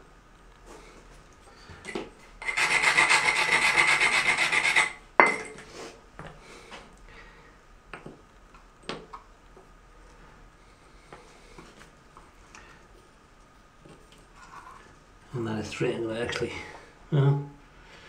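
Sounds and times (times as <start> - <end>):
stone rasping on tile edge: 2.4 - 5.0.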